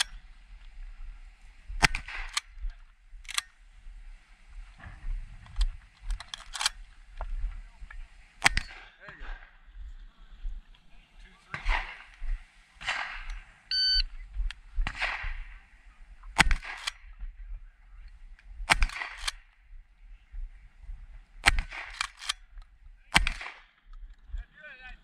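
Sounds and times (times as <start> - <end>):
shotgun firing: 1.8 - 2.5, 8.4 - 9.4, 11.5 - 13.5, 14.8 - 15.6, 16.4 - 17.0, 18.7 - 19.4, 21.4 - 22.4, 23.1 - 23.7
shot-timer beep: 13.7 - 14.1.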